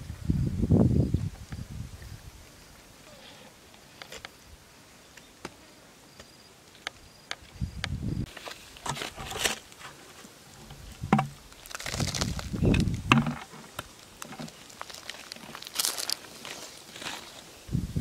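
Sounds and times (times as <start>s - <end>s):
crunching of dry leaf litter: 8.3s - 17.7s.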